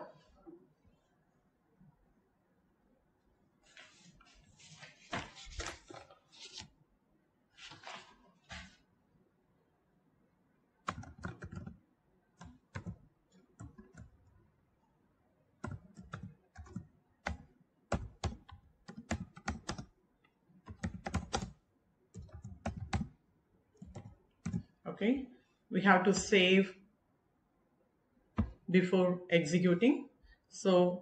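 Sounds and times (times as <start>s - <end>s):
computer keyboard typing: 10.8s - 11.8s, 12.4s - 14.3s, 15.6s - 19.9s, 20.6s - 23.2s, 23.8s - 24.8s.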